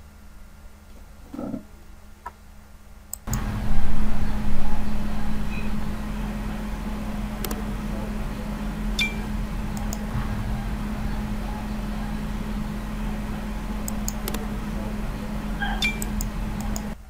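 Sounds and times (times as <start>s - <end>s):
steady hum and hiss: 0.0s - 17.0s
sharp clicks: 3.1s - 3.5s, 7.4s - 7.7s, 8.9s - 10.4s, 13.7s - 14.6s, 15.7s - 17.0s.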